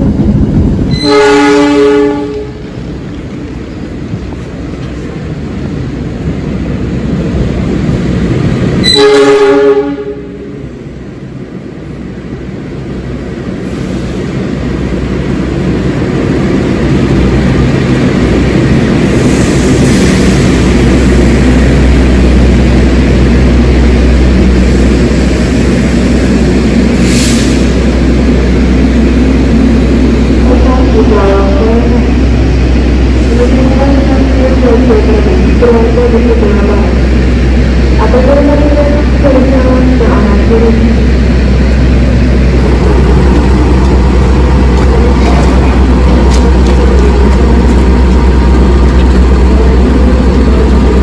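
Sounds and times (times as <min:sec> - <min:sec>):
train running rumble: 0:00.0 - 0:51.0
train horn chord: 0:01.0 - 0:02.6, 0:08.8 - 0:10.5.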